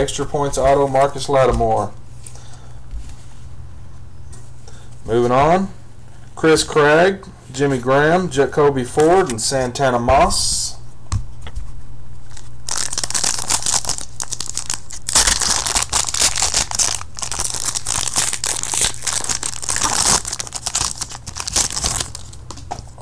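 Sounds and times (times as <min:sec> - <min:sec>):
foil wrapper tearing and crinkling: 0:12.3 - 0:22.5.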